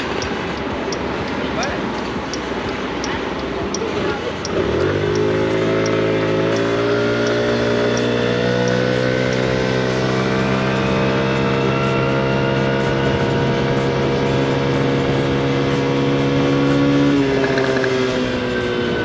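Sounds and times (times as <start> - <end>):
scooter engine pulling away: 4.4 - 19.0.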